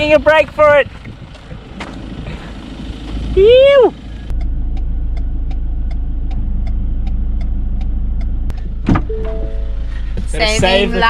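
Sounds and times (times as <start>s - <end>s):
vehicle engine idling: 0.0s - 11.0s
light regular ticking: 4.3s - 8.8s.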